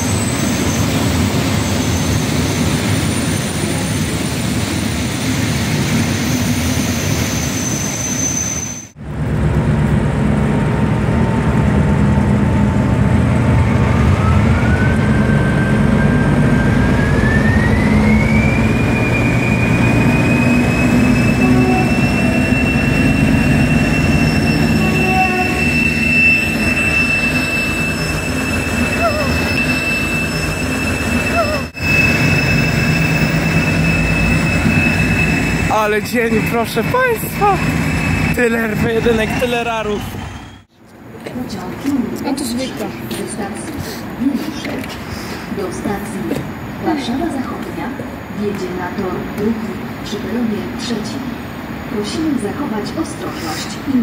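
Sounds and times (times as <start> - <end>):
diesel locomotive engines rumbling: 0.0 - 54.0
high engine whine: 8.9 - 40.7.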